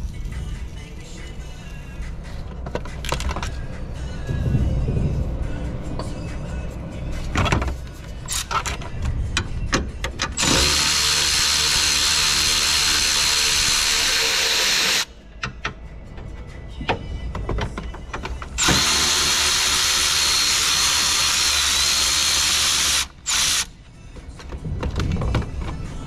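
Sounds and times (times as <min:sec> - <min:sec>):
air ratchet whirring: 0:10.4 - 0:15.1, 0:18.6 - 0:23.8
tool clicks and knocks: 0:15.4 - 0:18.6.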